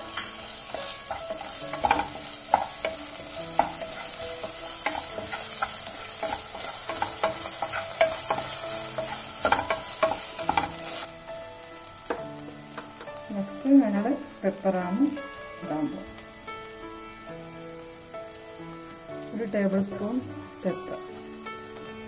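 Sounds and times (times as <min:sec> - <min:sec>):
spatula scraping and knocking pot: 0:00.0 - 0:11.1
vegetables sizzling in a pot: 0:00.0 - 0:22.0.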